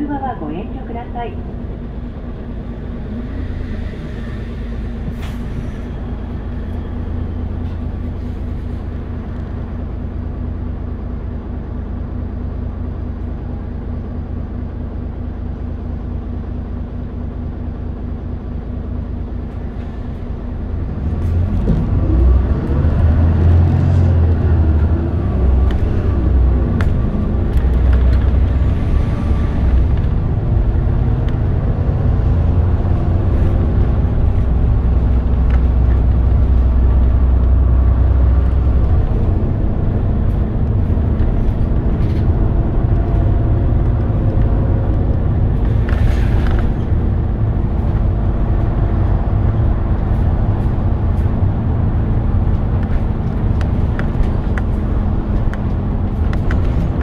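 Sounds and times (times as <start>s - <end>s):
bus diesel engine: 0.0s - 57.0s.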